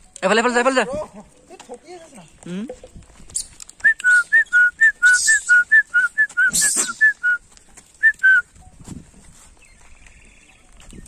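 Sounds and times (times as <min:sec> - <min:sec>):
hissing rustles: 0:01.3 - 0:08.1
person whistling two notes: 0:03.8 - 0:07.4, 0:08.0 - 0:08.5.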